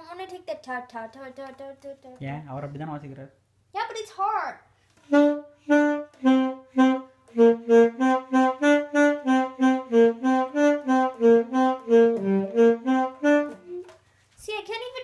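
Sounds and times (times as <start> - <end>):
alto saxophone melodic run: 5.1 - 14.0.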